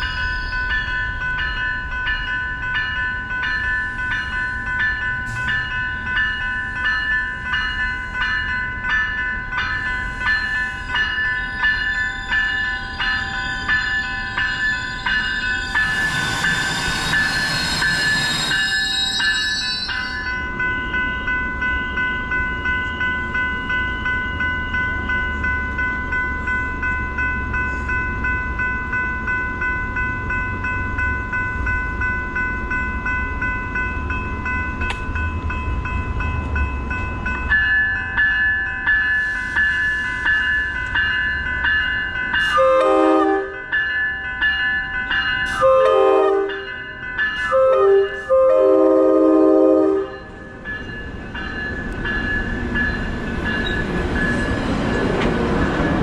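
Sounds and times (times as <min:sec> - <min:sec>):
level-crossing bells ringing: 0:00.0 - 0:56.0
train engine rumbling: 0:00.0 - 0:56.0
hiss with high squealing: 0:15.6 - 0:20.1, 0:39.2 - 0:40.4
train horn blasts: 0:42.5 - 0:43.6, 0:45.5 - 0:46.7, 0:47.4 - 0:50.3.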